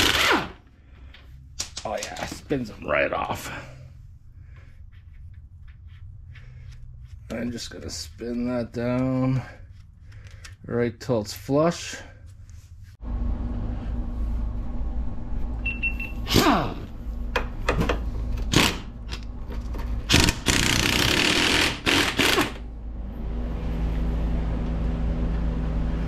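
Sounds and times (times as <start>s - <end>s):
pneumatic impact wrench hammering: 0.0s - 0.6s, 18.5s - 18.9s, 20.1s - 22.6s
low hum: 11.9s - 26.0s.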